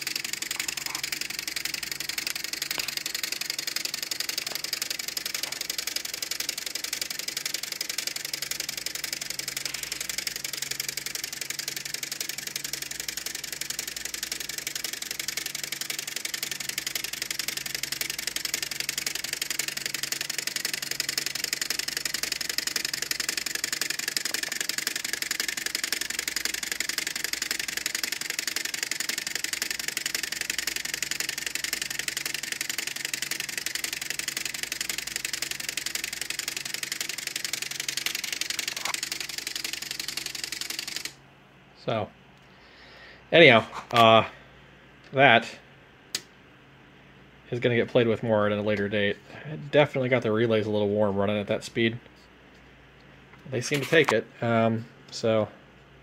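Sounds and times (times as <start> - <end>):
relays clicking rapidly: 0.0 - 41.2.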